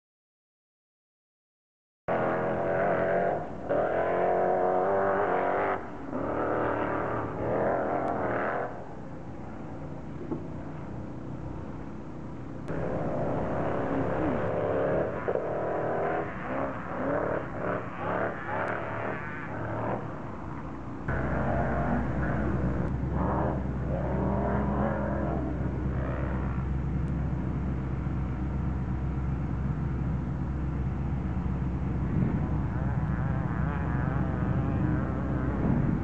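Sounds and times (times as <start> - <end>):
buggy engines revving: 2.1 - 36.0.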